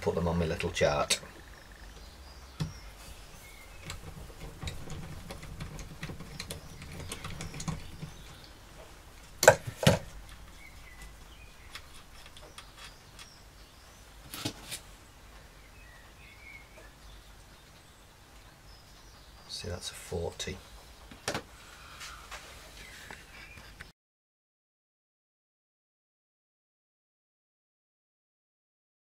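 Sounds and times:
sharp knocks: 9.4 - 10.1.

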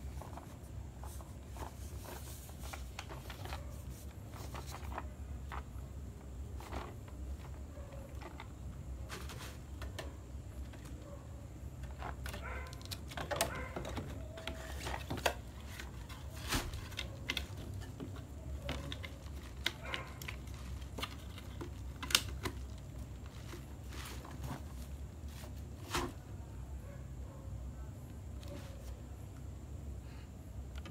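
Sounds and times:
plastic and bubble wrap crinkling: 0.0 - 5.8, 11.8 - 26.2
low steady hum: 0.0 - 30.9.

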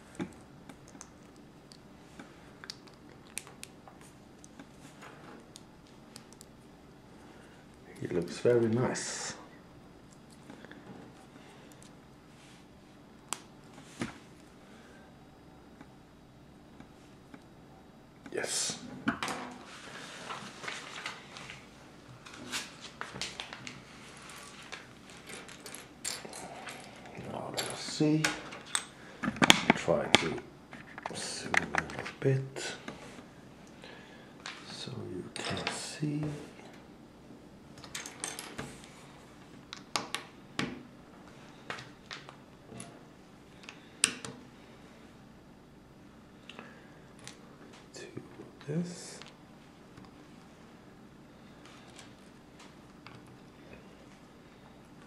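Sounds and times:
rustling of loose pieces: 19.5 - 29.7.

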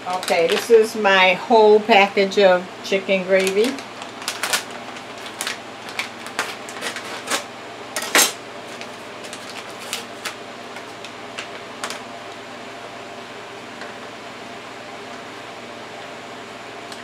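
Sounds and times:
paper packet crinkling: 0.0 - 1.0, 3.3 - 7.5, 8.7 - 12.1.

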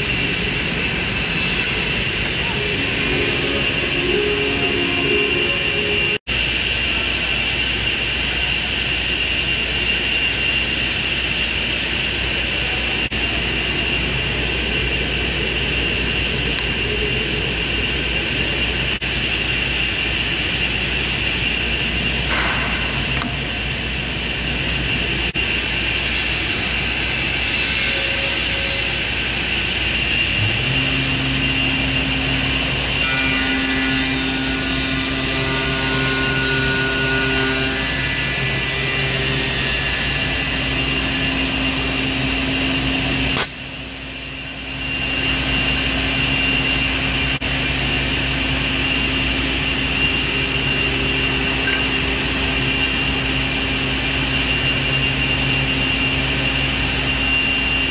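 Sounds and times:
router cutting wood: 30.4 - 42.1
woodworking machine din: 30.4 - 42.1.

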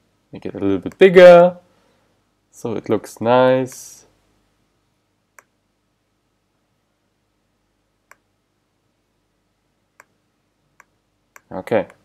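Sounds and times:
computer mouse clicks: 8.1 - 8.3, 10.0 - 10.2, 10.8 - 12.0.

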